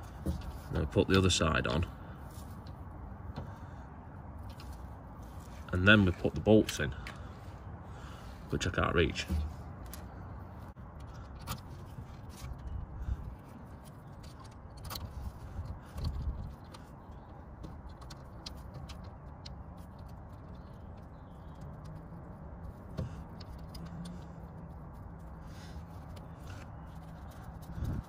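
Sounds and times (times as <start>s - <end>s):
small metal clicks and taps: 22.9s - 24.7s.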